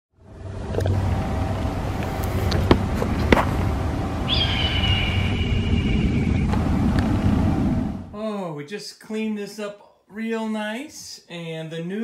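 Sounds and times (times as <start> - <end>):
steady low rumble: 0.2 - 8.2
hawk screaming: 4.3 - 6.2.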